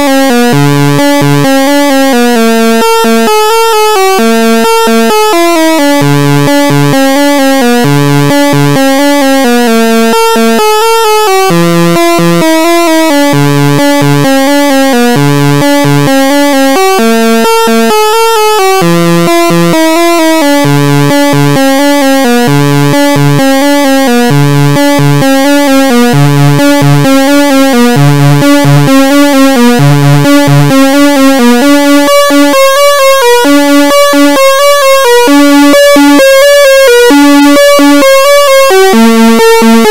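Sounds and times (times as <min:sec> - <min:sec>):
synth bass line: 0:00.0 - 0:39.9
synthesizer sequenced pattern: 0:00.0 - 0:39.9.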